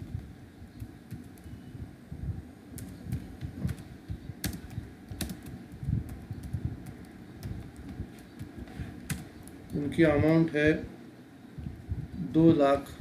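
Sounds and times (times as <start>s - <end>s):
computer keyboard typing: 0.8s - 1.6s, 2.8s - 10.4s.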